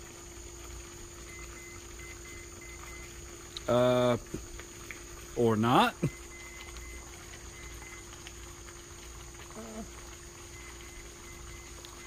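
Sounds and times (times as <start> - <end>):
crickets chirping: 0.0 - 12.0
steady hum: 0.0 - 12.0.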